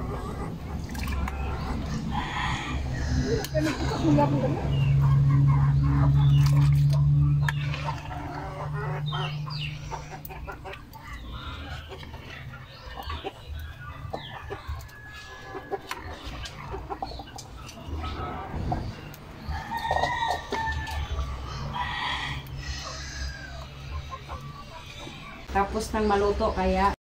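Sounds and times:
chickens clucking: 0:00.0 - 0:27.0
rooster crowing: 0:19.5 - 0:21.0.

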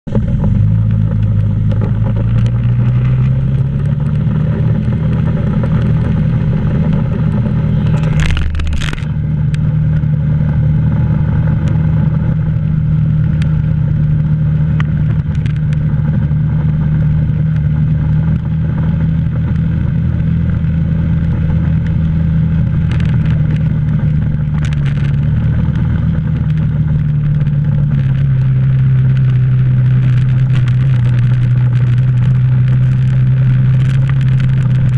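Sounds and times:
loud clatter: 0:00.1 - 0:09.6
atv engine running: 0:00.1 - 0:34.9.

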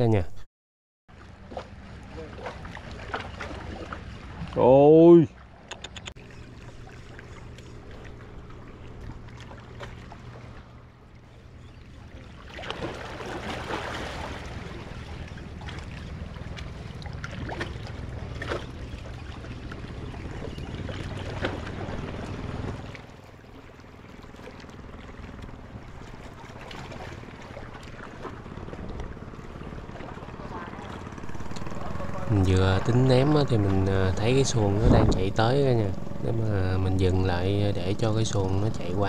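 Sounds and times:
boat motor humming: 0:01.1 - 0:39.0
waves washing: 0:12.3 - 0:20.0, 0:20.7 - 0:39.0
wind on microphone: 0:31.2 - 0:38.0.

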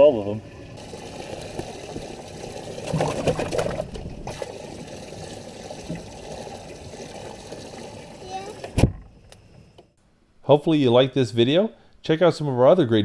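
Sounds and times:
water splashing and trickling: 0:00.0 - 0:08.8.

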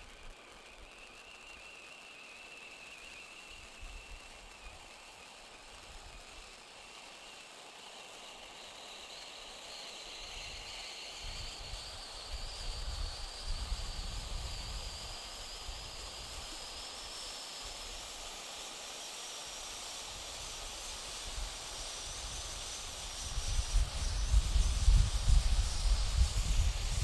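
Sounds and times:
firework fountain hissing: 0:00.0 - 0:27.0
wind rumbling on microphone: 0:11.2 - 0:16.5, 0:22.2 - 0:27.0.

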